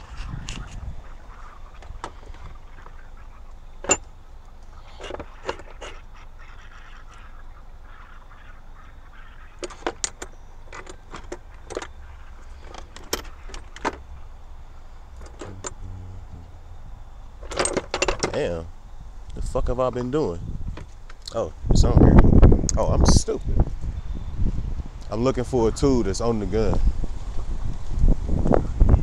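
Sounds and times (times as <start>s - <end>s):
low steady rumble: 0.0s - 5.4s, 10.3s - 28.9s
tools clattering in plastic case: 3.8s - 4.1s.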